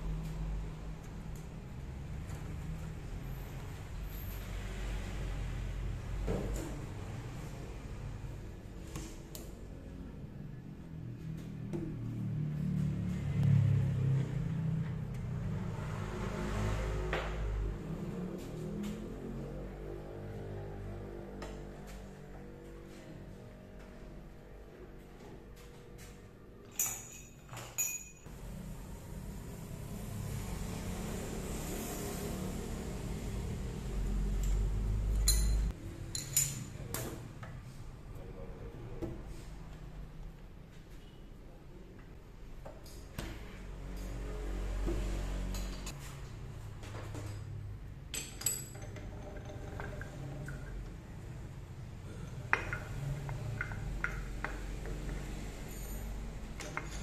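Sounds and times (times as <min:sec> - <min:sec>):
metal tools clinking: 0:26.7 - 0:28.3, 0:34.5 - 0:36.8, 0:55.6 - 0:57.0.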